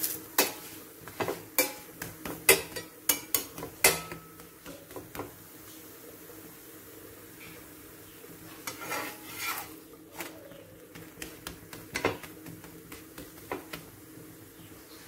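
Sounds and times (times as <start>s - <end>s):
metal spatula scraping griddle: 8.5s - 9.9s.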